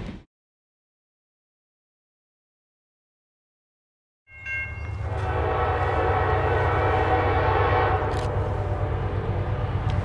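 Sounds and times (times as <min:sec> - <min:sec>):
deep locomotive engine rumble: 0:04.3 - 0:10.0
train horn chord: 0:04.8 - 0:09.5.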